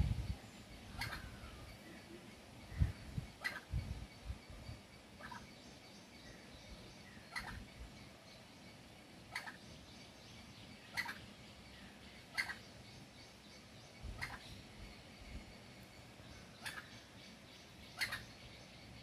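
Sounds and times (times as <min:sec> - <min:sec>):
junglefowl hen calling: 0:01.0 - 0:01.7, 0:07.3 - 0:07.6, 0:09.3 - 0:09.6, 0:10.9 - 0:11.3, 0:12.3 - 0:12.6, 0:14.1 - 0:14.5, 0:16.6 - 0:16.9, 0:18.0 - 0:18.3.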